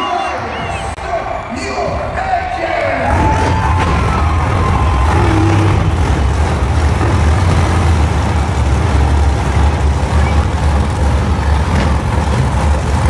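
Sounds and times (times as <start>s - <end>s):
truck engines idling: 0.0s - 13.0s.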